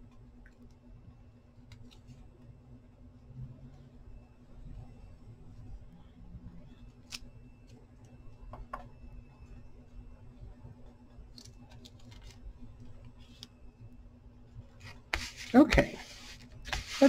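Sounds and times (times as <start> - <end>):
low steady hum: 0.0 - 17.0
paper rustling and clicks: 11.4 - 12.4.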